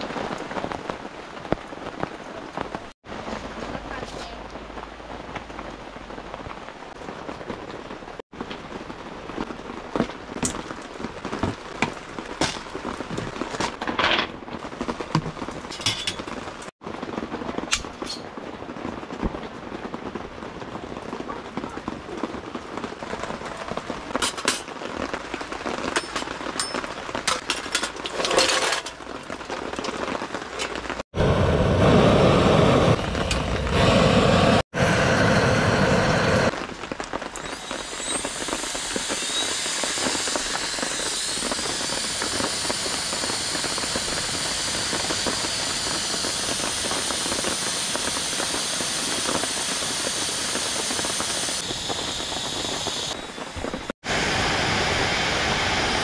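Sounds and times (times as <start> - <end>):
rain pattering: 0.0 - 31.0, 35.7 - 54.7
air blower whining and hissing: 31.2 - 36.5, 37.4 - 56.0.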